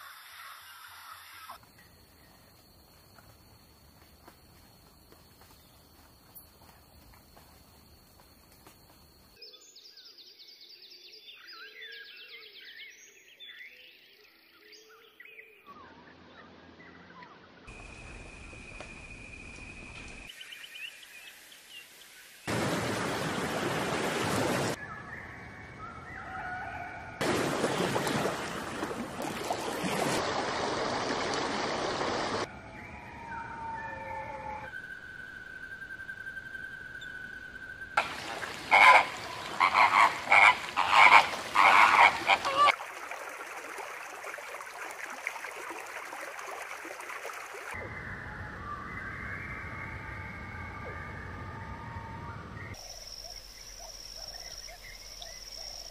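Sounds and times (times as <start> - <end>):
outdoor ambience: 0.0 - 10.2, 14.9 - 44.6, 47.3 - 55.9
songbird chirps and whistles: 32.7 - 38.0, 47.8 - 55.9.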